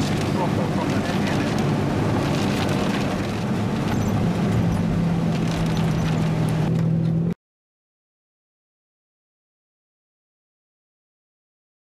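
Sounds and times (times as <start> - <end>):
car engine running: 0.0 - 7.3.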